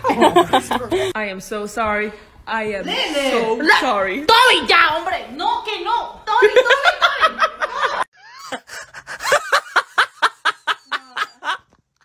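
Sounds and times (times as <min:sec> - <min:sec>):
speech and laughter: 0:06.3 - 0:08.5, 0:09.4 - 0:11.6.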